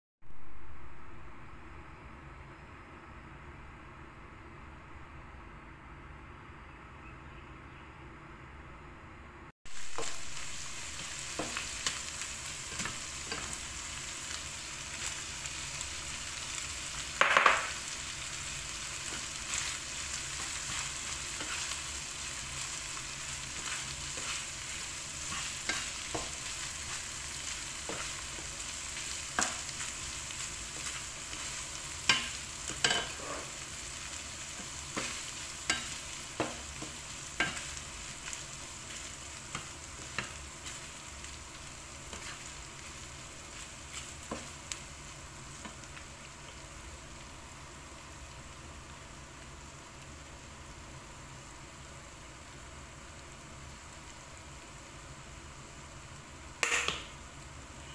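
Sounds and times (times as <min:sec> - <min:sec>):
food sizzling in a pan: 0:09.7 - 0:57.9
spatula scraping and tapping pan: 0:17.2 - 0:17.8, 0:23.5 - 0:28.7, 0:30.7 - 0:33.5, 0:34.6 - 0:37.8, 0:56.6 - 0:57.1.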